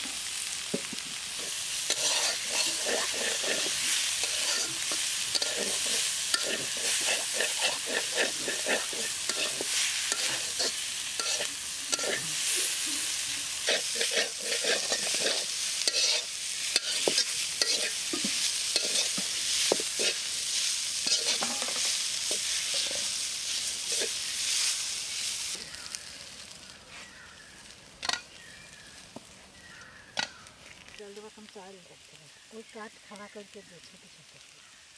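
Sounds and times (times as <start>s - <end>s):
banana pieces sizzling in pan: 0.0s - 34.9s
metal spatula scraping pan: 1.4s - 24.2s.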